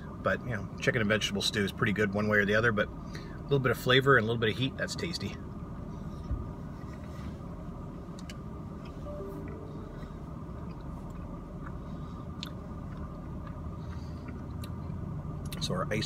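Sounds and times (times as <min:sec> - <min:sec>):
low car cabin hum: 0:05.3 - 0:16.0.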